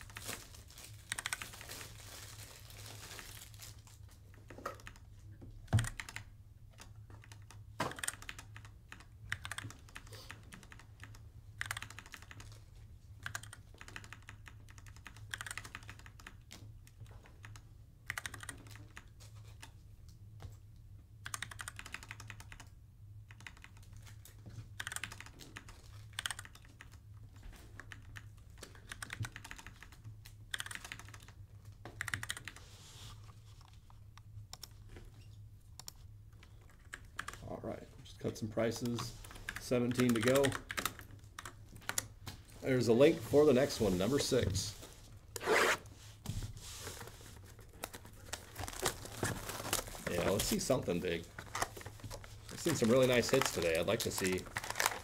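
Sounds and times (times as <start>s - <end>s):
computer keyboard typing: 1.1s - 1.6s, 4.3s - 5.1s, 5.7s - 12.6s, 13.2s - 19.8s, 21.2s - 24.2s, 24.8s - 27.0s, 27.6s - 32.6s, 34.5s - 34.9s, 35.7s - 37.4s, 38.8s - 42.1s.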